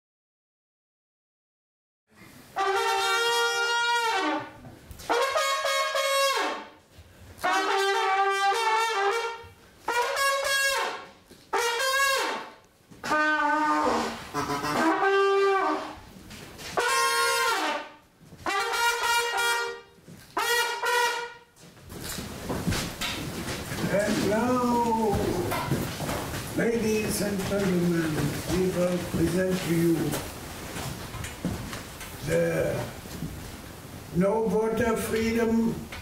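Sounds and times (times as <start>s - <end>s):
trumpet playing slow tune: 2.5s - 6.8s, 7.4s - 16.1s, 16.8s - 21.6s.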